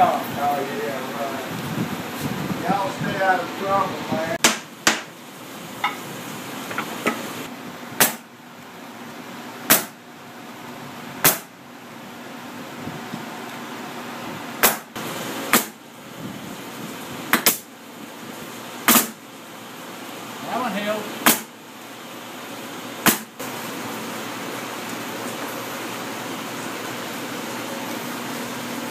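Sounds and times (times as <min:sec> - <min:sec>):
pneumatic nailer firing: 0:08.0 - 0:08.3, 0:09.7 - 0:10.0, 0:11.2 - 0:11.5, 0:14.6 - 0:15.8, 0:17.3 - 0:17.7, 0:18.8 - 0:19.2, 0:21.2 - 0:21.5, 0:23.0 - 0:23.3.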